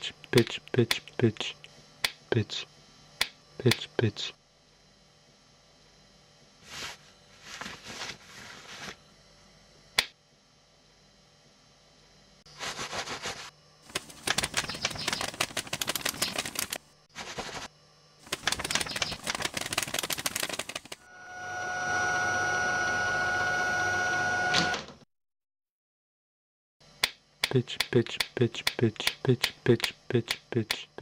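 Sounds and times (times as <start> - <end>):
sharp click: 10.0 - 10.2, 27.0 - 30.8
short rustling bursts: 12.6 - 21.0
fast dense clicking and rattling: 13.9 - 16.8, 18.2 - 21.0.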